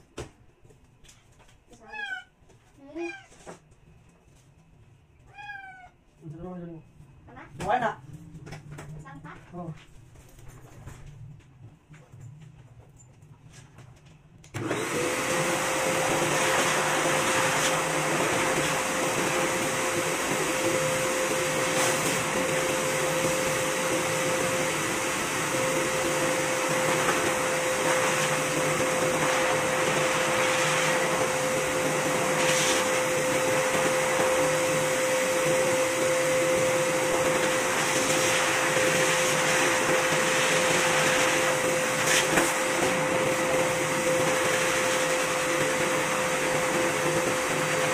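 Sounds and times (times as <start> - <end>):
pet grooming blower motor whining: 14.5 - 47.9.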